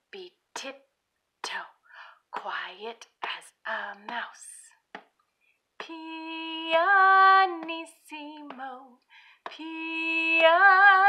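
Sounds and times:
woman singing held notes: 0:05.8 - 0:11.0.

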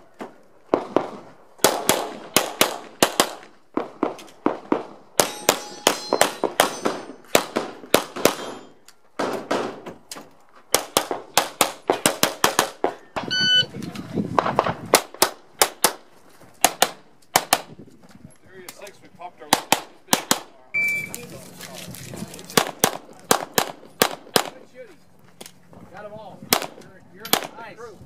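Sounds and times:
pistol shots: 0:00.7 - 0:09.8, 0:10.7 - 0:12.9, 0:19.5 - 0:20.5, 0:22.6 - 0:24.6, 0:26.5 - 0:27.6
metallic ringing: 0:05.2 - 0:07.3.

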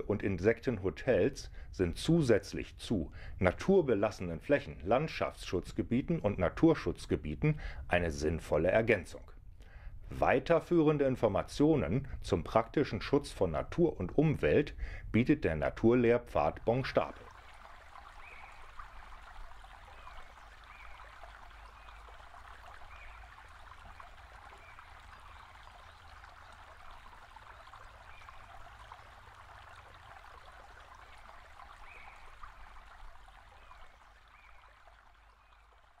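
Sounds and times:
running water: 0:15.5 - 0:36.0.

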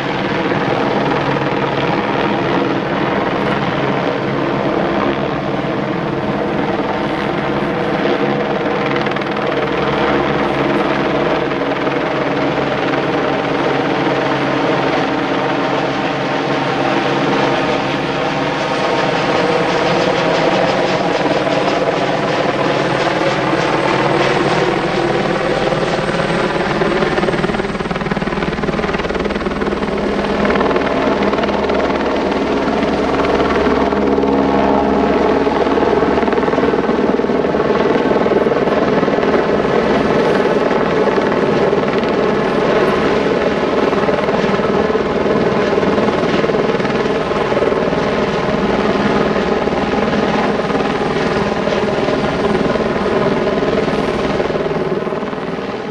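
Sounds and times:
loud engine drone: 0:33.8 - 0:55.9.

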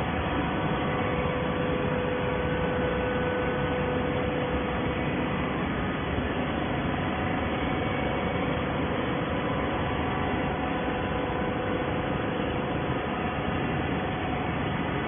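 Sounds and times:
baler machine hum and hiss: 0:00.0 - 0:15.0
faint steady whine: 0:00.0 - 0:15.0.

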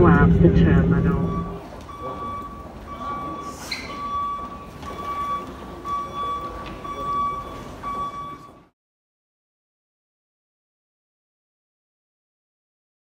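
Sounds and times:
low rumble: 0:00.0 - 0:01.8
electronic warning beeper: 0:00.0 - 0:08.6
murmur of voices: 0:00.0 - 0:08.7.

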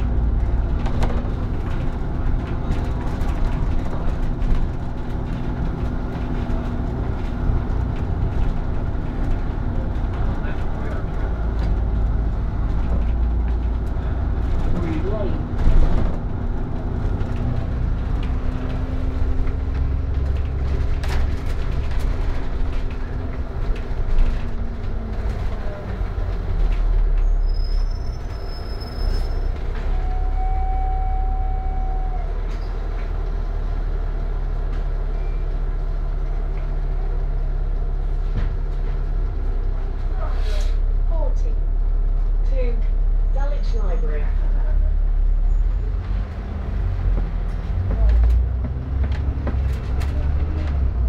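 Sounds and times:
bus engine idling: 0:00.0 - 0:51.0
bus engine whine: 0:00.0 - 0:51.0
brief squeal: 0:27.2 - 0:32.7, 0:35.2 - 0:35.5.

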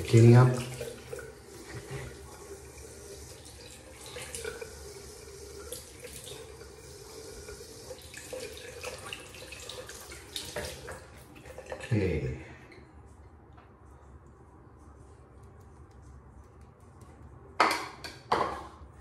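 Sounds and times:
tap water running into sink: 0:00.0 - 0:12.0.

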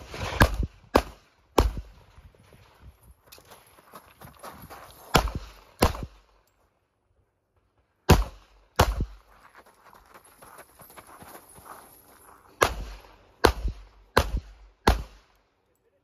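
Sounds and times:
pistol shots: 0:00.3 - 0:02.0, 0:05.1 - 0:06.3, 0:08.1 - 0:09.2, 0:12.6 - 0:15.4.

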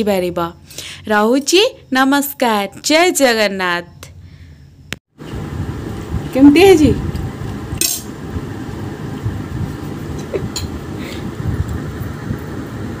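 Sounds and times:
steady low rumble: 0:05.2 - 0:13.0.

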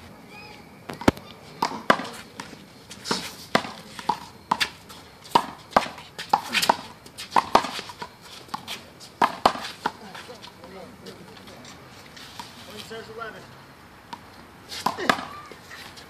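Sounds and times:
ball smacking off concrete wall: 0:14.8 - 0:15.6.

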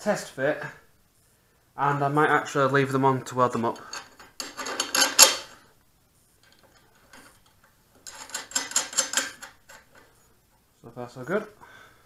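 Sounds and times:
metallic clicking and clinking: 0:03.8 - 0:05.6, 0:06.4 - 0:10.1.

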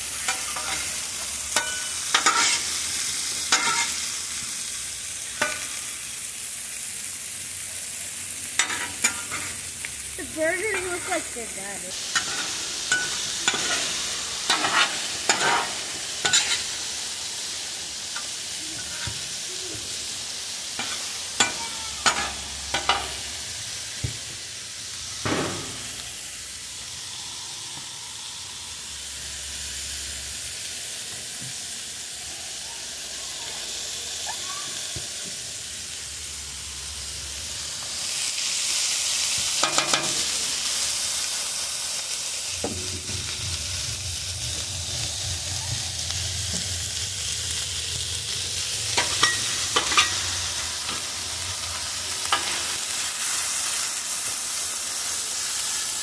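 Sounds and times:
food sizzling on a griddle: 0:00.0 - 0:56.0
metal spatula scraping on steel: 0:00.2 - 0:02.8, 0:03.5 - 0:04.1, 0:08.6 - 0:09.6, 0:12.1 - 0:16.8, 0:20.8 - 0:23.2, 0:49.0 - 0:51.1, 0:52.2 - 0:52.8.

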